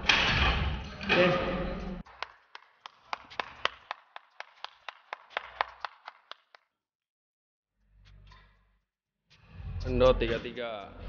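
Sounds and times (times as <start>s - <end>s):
person clapping hands: 2.0s - 6.7s.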